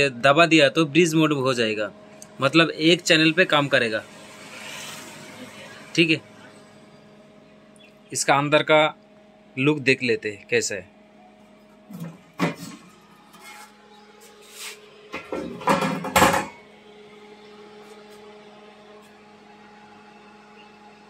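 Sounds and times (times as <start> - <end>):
sheet metal scraping and knocking: 15.2 - 16.6.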